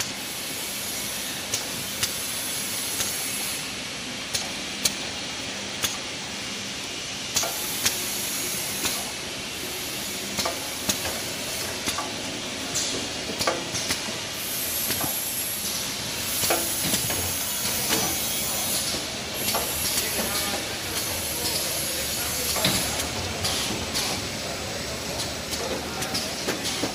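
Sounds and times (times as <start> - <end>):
packing machine mechanical hiss: 0.0 - 26.9
conveyor clicks and knocks: 18.8 - 24.4.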